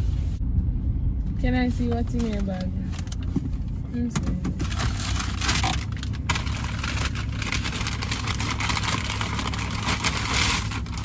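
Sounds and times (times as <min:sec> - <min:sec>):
car engine idling: 0:00.0 - 0:11.0
paper bag rustling: 0:04.6 - 0:11.0.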